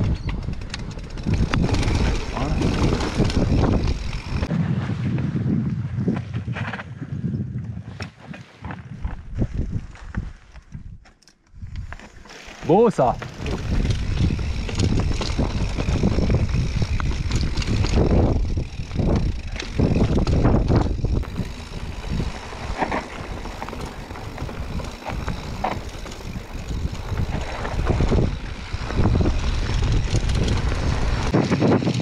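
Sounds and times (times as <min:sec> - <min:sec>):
mountain bike rattling over ground: 0:00.0 - 0:04.5, 0:11.6 - 0:32.0
wind buffeting microphone: 0:00.0 - 0:11.0, 0:12.7 - 0:32.0.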